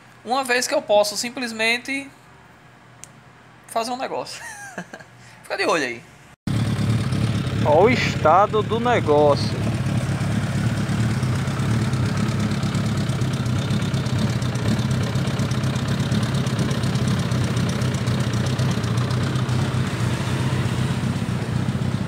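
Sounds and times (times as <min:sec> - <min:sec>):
motorcycle engine idling: 0:06.5 - 0:22.0.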